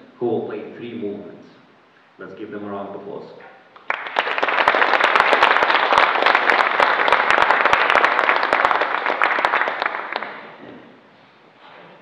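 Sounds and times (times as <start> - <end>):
audience applauding: 3.8 - 10.6.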